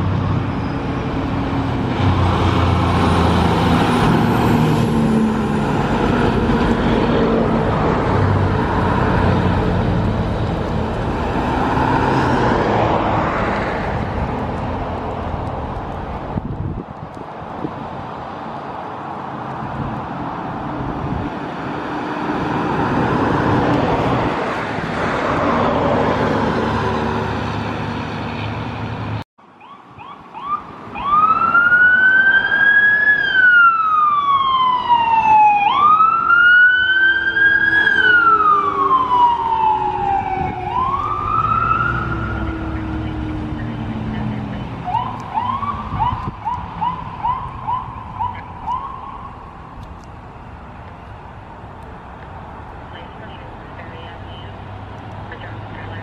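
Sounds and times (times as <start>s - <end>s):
road vehicles passing: 0.0s - 56.0s
electronic siren wailing and yelping: 29.6s - 43.2s, 44.8s - 49.3s.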